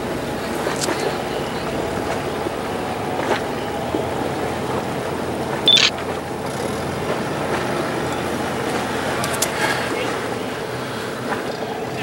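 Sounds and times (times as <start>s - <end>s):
boat engines: 0.0s - 12.0s
sharp high-pitched chirp: 5.7s - 5.9s.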